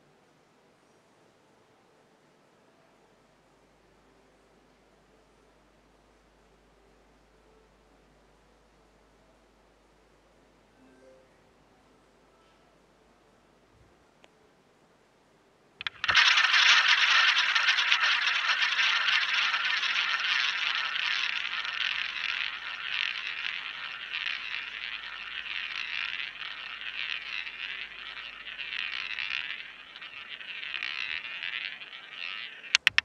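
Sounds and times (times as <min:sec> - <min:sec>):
roulette ball rolling and rattling: 0:15.8 - 0:33.0
sharp clicks: 0:15.8 - 0:33.0.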